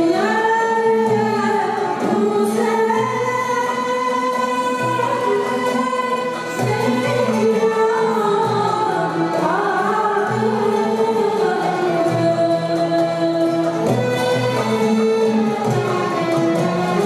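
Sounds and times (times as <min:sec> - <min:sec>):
oud: 0:00.0 - 0:17.0
violin: 0:00.0 - 0:17.0
woman singing: 0:00.0 - 0:17.0.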